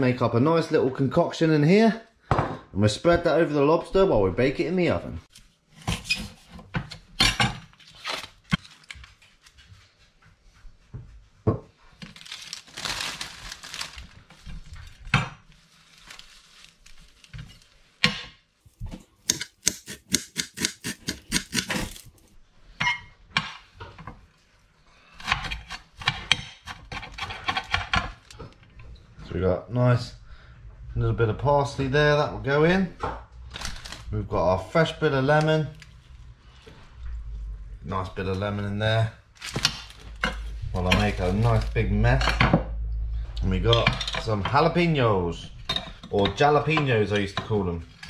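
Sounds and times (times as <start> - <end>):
plastic packaging rustling: 7.7 - 9.6, 11.8 - 18.0, 21.2 - 22.4, 33.4 - 34.3, 39.0 - 42.0
knife chopping on cutting board: 18.9 - 22.1.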